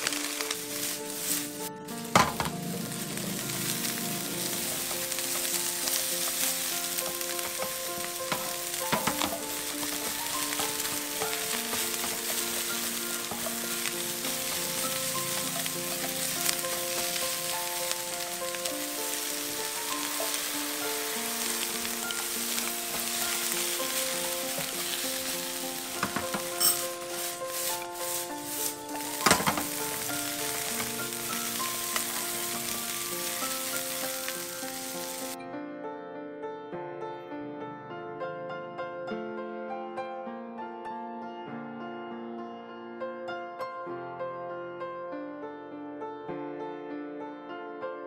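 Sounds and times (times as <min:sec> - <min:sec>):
spatula stirring and tossing: 0:00.0 - 0:35.4
vegetables sizzling in a wok: 0:00.0 - 0:35.4.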